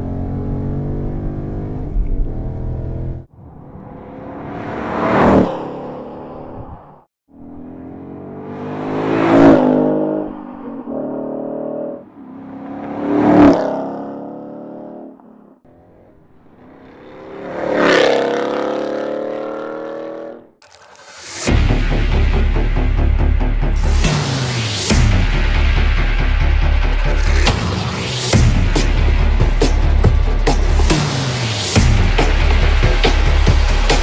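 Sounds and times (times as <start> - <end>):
car engine driving by: 1.2 - 14.2.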